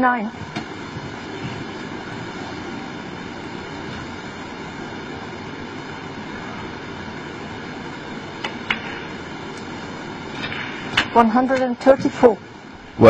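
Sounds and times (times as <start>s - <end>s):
room tone hiss and hum: 0.0s - 13.0s.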